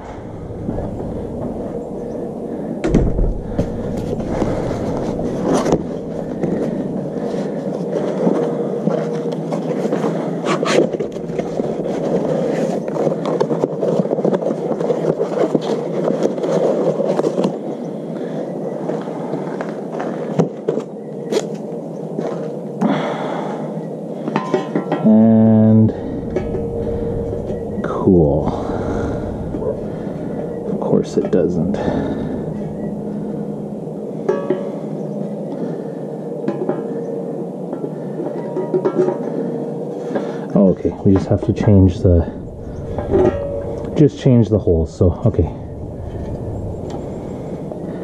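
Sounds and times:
heavy thump: 0.0 - 7.1
background noise: 0.0 - 48.0.

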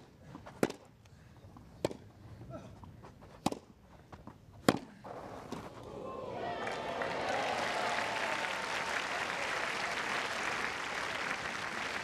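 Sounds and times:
tennis racket hitting ball: 3.4 - 3.7, 4.6 - 5.7
crowd noise: 5.0 - 12.0.

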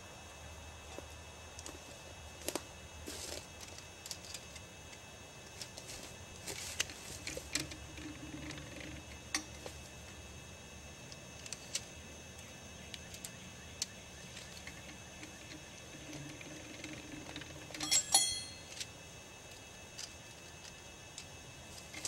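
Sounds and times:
rustle of dry leaves underfoot: 1.7 - 4.4, 5.4 - 7.6.

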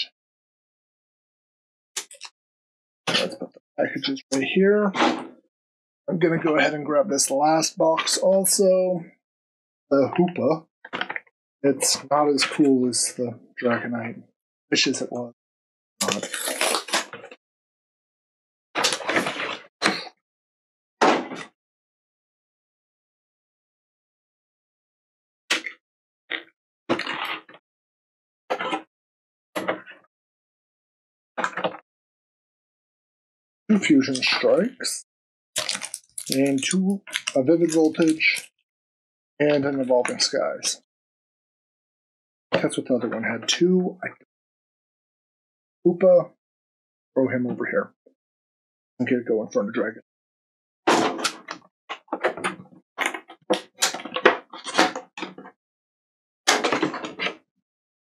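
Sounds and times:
packaging rustling: 35.6 - 38.5.

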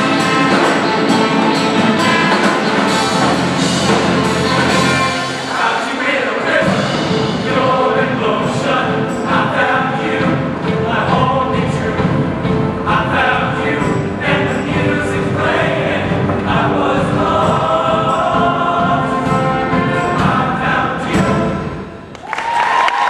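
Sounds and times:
men's choir singing: 0.0 - 21.8
audience cheering and whooping: 22.1 - 23.0.

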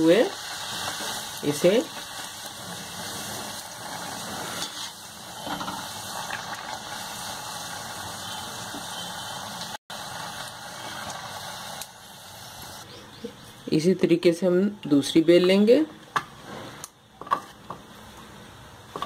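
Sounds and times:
bread deep-frying in oil: 0.0 - 13.8.

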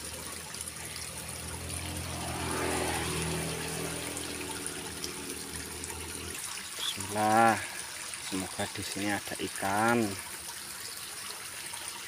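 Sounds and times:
water trickling in a ditch: 0.0 - 12.0
low hum: 0.7 - 6.4.

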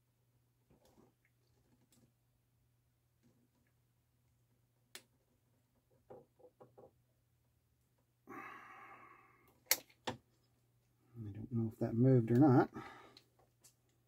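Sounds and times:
person sighing: 8.2 - 9.5, 12.7 - 13.2.

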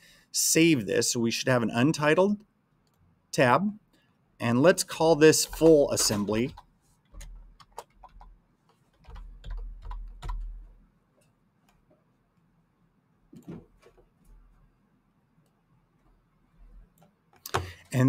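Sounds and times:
computer keyboard typing: 5.3 - 10.7.

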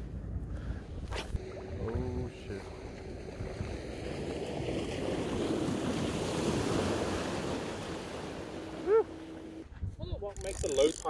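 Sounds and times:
small waves washing in: 1.4 - 9.6.

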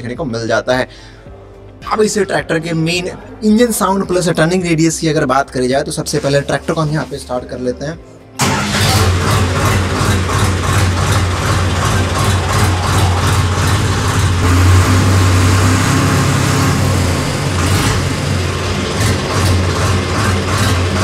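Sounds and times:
tractor diesel engine idling: 8.4 - 21.0.

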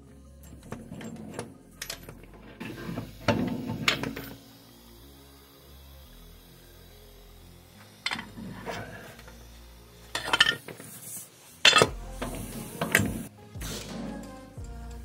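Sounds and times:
metal tools clinking: 10.1 - 10.9, 11.6 - 11.9.

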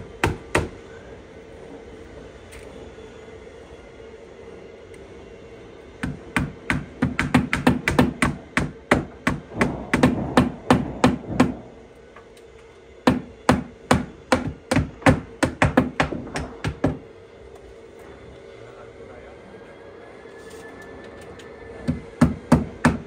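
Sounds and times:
hammers driving nails: 6.0 - 11.7, 13.0 - 17.0, 21.8 - 23.0.

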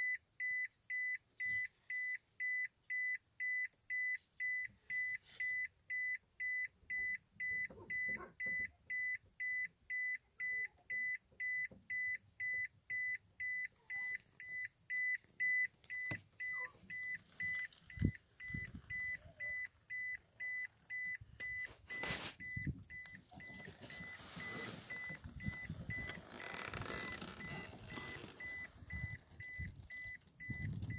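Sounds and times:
car warning chime beeping: 0.0 - 30.9.

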